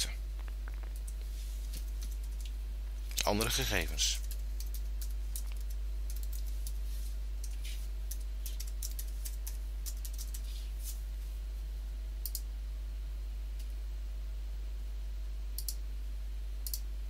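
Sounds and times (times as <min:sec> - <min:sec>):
steady low hum: 0:00.0 - 0:17.0
typing on computer keyboard: 0:04.2 - 0:06.8, 0:07.4 - 0:10.5.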